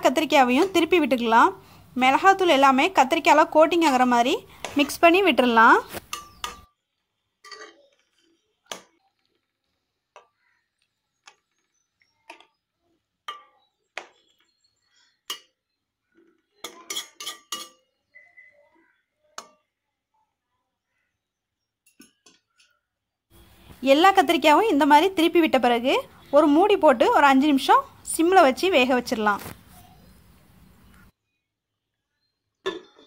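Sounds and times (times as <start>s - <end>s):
metal spatula scraping metal pan: 5.8s - 6.7s.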